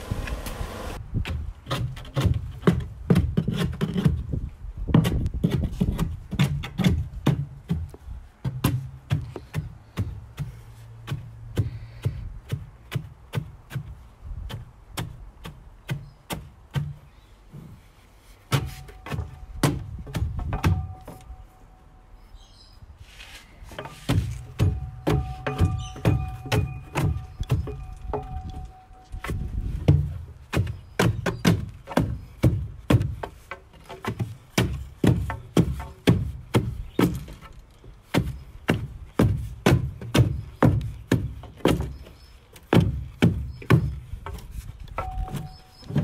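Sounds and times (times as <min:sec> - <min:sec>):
dull thuds of earth being rammed: 0:29.1 - 0:33.4.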